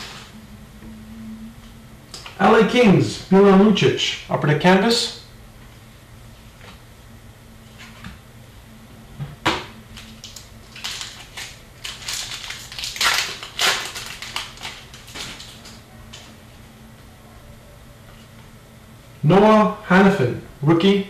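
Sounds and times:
foil wrapper crinkling: 10.0 - 15.8.

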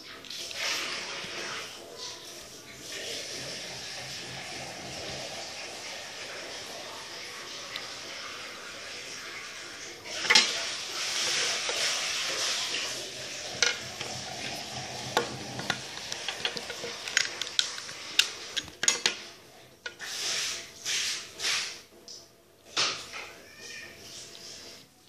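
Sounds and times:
rustling handling noise: 9.8 - 21.5.

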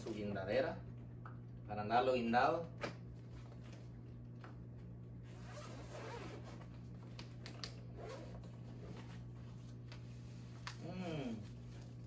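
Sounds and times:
zipper rasping open: 5.2 - 6.8, 7.9 - 9.1.

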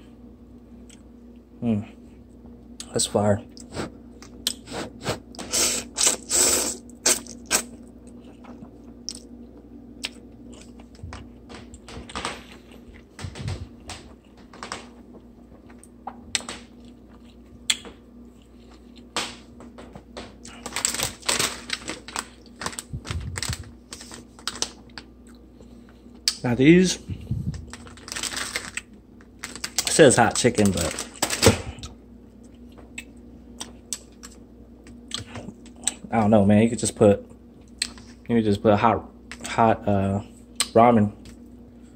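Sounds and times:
plastic packet crinkling: 20.4 - 25.1, 27.2 - 31.8.

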